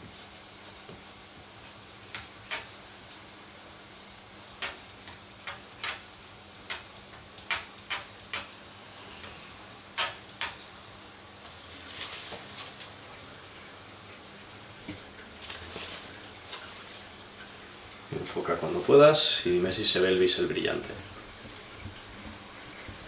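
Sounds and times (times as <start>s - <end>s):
knife scraping on whetstone: 1.3s - 2.8s.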